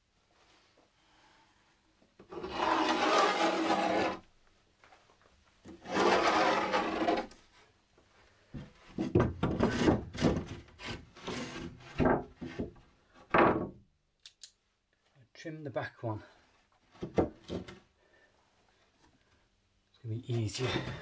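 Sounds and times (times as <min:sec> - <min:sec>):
board scraping on wood: 0:02.3 - 0:04.2, 0:05.7 - 0:07.4, 0:08.9 - 0:12.8
wood knocking and rubbing: 0:08.6 - 0:13.7, 0:16.9 - 0:17.8.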